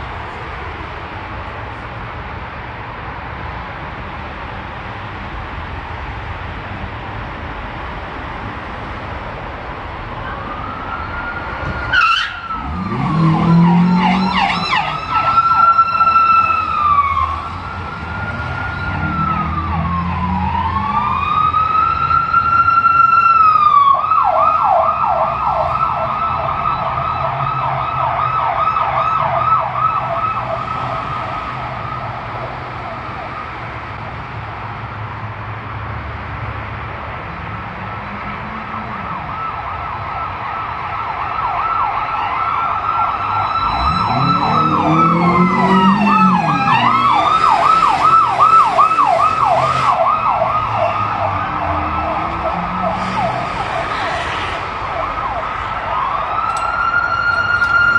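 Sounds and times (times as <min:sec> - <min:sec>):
vehicle engines rumbling: 0:00.0 - 0:57.9
police siren wailing and yelping: 0:10.2 - 0:33.5, 0:38.8 - 0:57.9.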